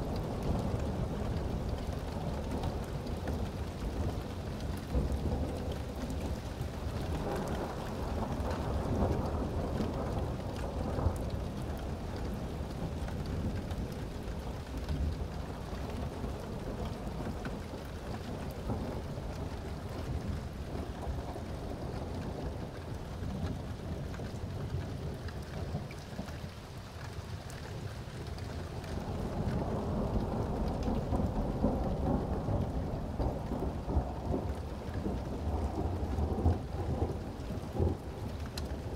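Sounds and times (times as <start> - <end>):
steady rain: 0.0 - 38.9
ticks of raindrops: 0.0 - 38.9
thunder rumbling low: 28.9 - 38.9.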